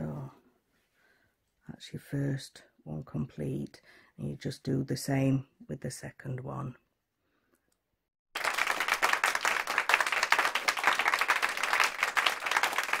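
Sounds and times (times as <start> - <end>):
crowd applauding: 8.4 - 13.0.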